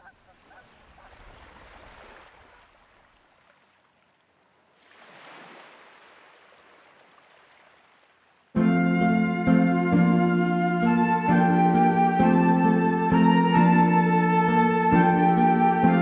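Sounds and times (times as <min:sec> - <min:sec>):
soft hiss of air and water: 0:00.0 - 0:08.6
music: 0:08.6 - 0:16.0.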